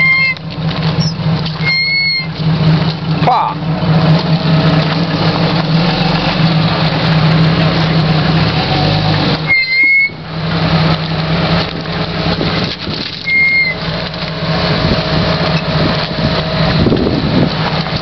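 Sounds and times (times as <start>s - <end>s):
engine running at low revs: 0.0s - 18.0s
short high whistles: 1.0s - 2.3s, 9.5s - 10.2s, 13.2s - 13.8s.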